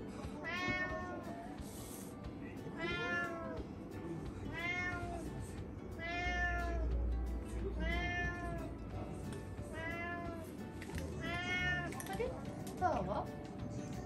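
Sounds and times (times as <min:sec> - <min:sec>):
cat meowing: 0:00.4 - 0:01.4, 0:02.8 - 0:03.6, 0:04.5 - 0:05.3, 0:06.0 - 0:06.9, 0:07.8 - 0:08.7, 0:09.7 - 0:10.4, 0:11.2 - 0:12.0.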